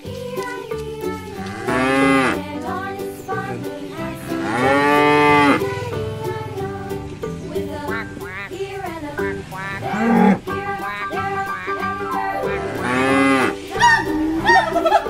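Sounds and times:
light background music: 0:00.0 - 0:15.0
cow mooing: 0:01.5 - 0:02.4, 0:04.3 - 0:07.0, 0:07.9 - 0:14.6.

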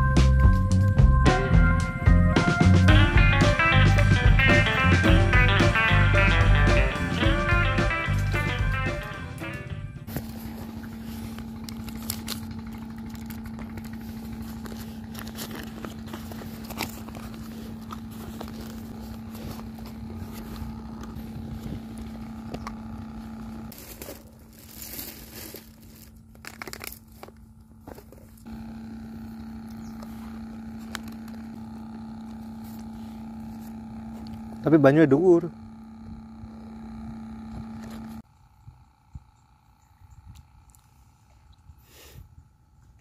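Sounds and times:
steady low hum: 0:00.0 - 0:43.0
paper wrapper crinkling: 0:10.1 - 0:22.1, 0:22.8 - 0:28.5.

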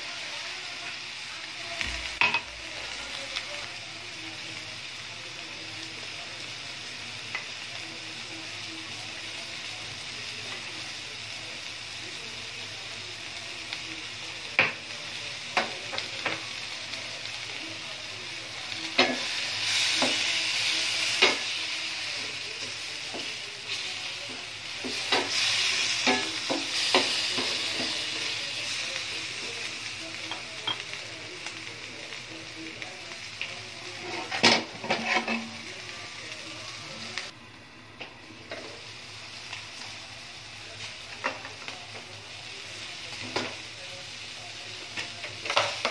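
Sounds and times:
food sizzling in a frying pan: 0:00.0 - 0:45.9
wooden spatula scraping a pan: 0:34.0 - 0:35.5.

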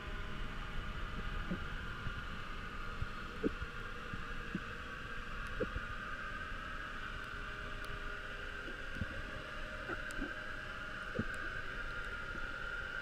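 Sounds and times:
underwater hum and rumble: 0:00.0 - 0:13.0.

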